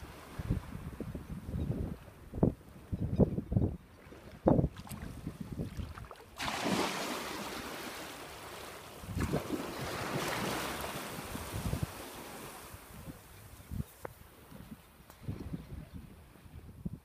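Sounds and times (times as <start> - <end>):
wind buffeting microphone: 0.0 - 6.7, 9.0 - 17.0
small waves hissing on shore: 6.4 - 14.5.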